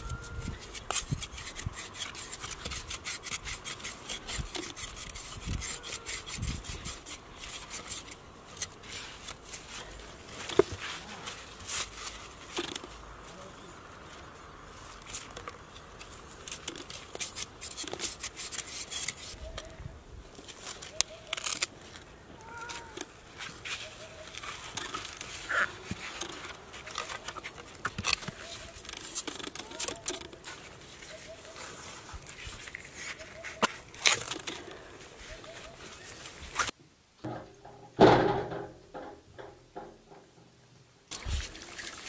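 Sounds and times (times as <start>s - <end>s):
knife scraping hoof: 0.0s - 12.7s, 15.1s - 19.4s, 23.4s - 36.7s.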